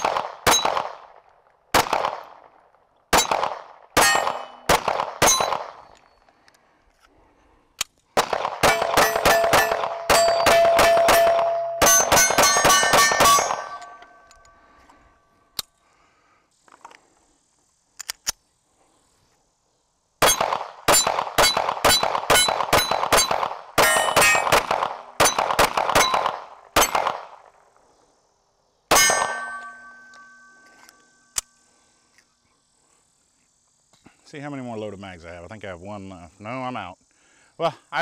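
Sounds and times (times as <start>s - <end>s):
pistol shots: 0.0s - 2.5s, 3.1s - 5.9s, 8.2s - 13.9s, 20.2s - 27.4s, 28.9s - 29.9s
steel plates ringing: 4.0s - 4.7s, 8.7s - 14.6s, 21.4s - 24.5s, 28.9s - 31.4s.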